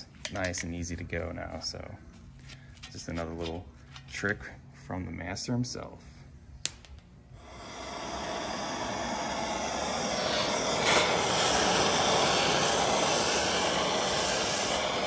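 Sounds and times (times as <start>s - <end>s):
gas torch hissing: 7.3s - 15.0s.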